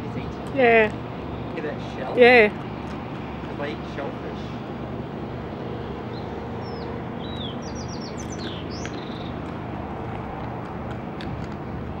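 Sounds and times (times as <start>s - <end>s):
small bird chirping: 6.1s - 9.6s.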